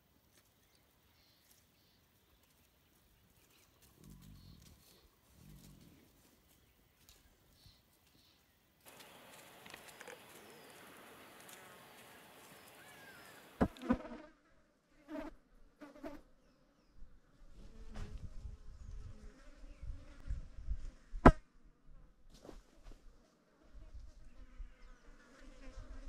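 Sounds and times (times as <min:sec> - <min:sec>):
flies buzzing: 0:08.9 - 0:14.4
wind rumble on microphone: 0:17.5 - 0:21.3.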